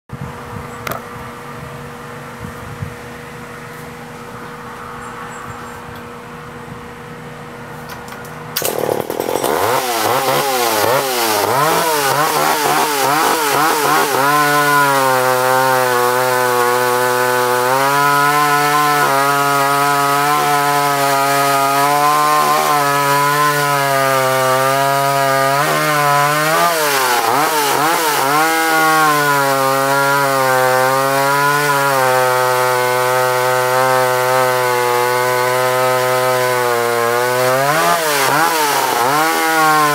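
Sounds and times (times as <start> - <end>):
chainsaw revving and cutting log: 8.4 - 39.9.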